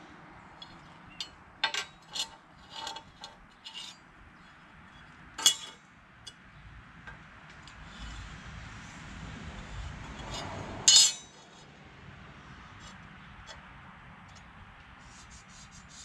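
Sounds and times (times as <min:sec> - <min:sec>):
metal tools clinking on steel plate: 0:00.6 - 0:04.0, 0:04.9 - 0:06.4, 0:10.9 - 0:11.6.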